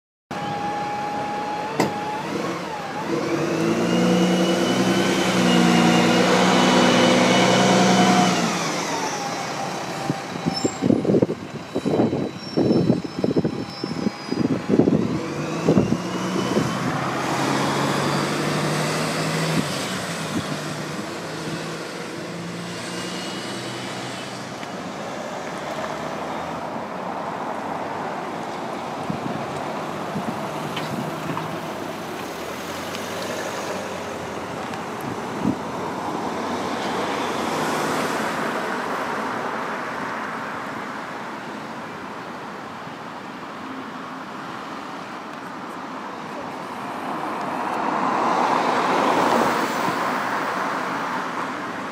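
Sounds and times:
vehicle engine rising whine: 0.3 - 26.8
bus engine whining: 0.3 - 39.7
traffic hum: 0.3 - 51.9.

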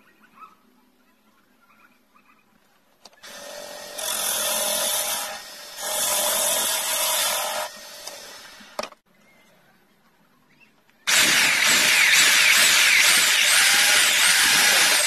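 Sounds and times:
wood lathe running: 11.1 - 15.0.

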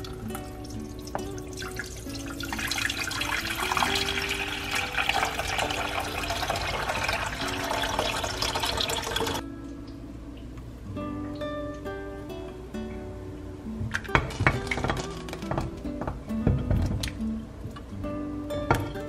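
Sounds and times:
water pouring into saucepan: 0.0 - 9.4.

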